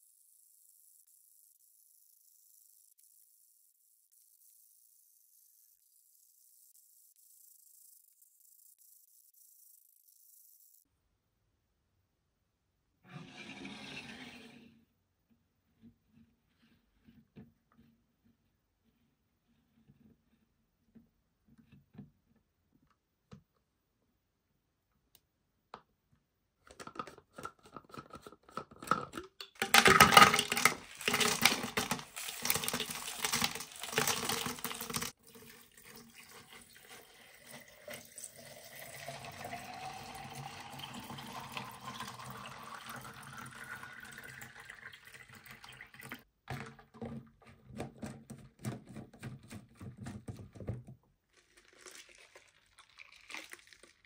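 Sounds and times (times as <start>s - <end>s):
water pouring into plastic bottle: 29.6s - 46.7s, 51.2s - 54.0s.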